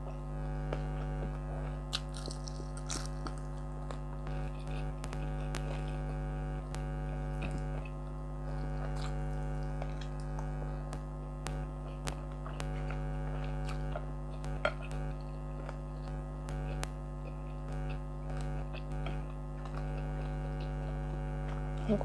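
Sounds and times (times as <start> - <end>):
air conditioner humming: 0.0 - 22.0
small clicks of eating: 0.1 - 21.9
chewing: 8.7 - 10.6, 11.8 - 21.6.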